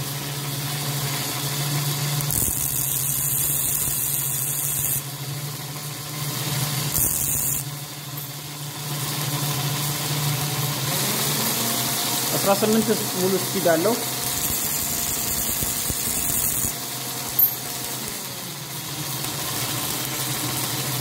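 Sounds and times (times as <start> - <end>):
belt sander motor running: 0.5 - 5.1, 6.4 - 21.0
drill bit grinding on sander belt: 1.1 - 5.1, 6.4 - 8.3, 10.6 - 21.0.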